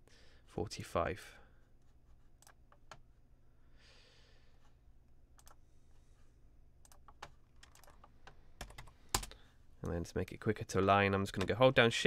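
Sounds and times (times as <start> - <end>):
soft breath: 3.4 - 4.8, 5.5 - 6.5.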